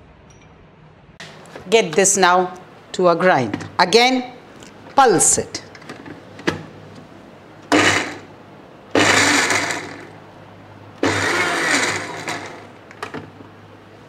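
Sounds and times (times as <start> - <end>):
mixer grinder running: 7.7 - 8.3, 8.9 - 10.1, 11.0 - 12.8.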